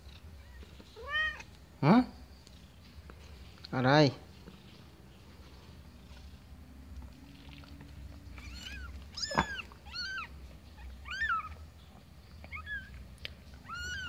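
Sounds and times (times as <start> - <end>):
kitten mewing: 8.4 - 11.6, 13.6 - 14.0.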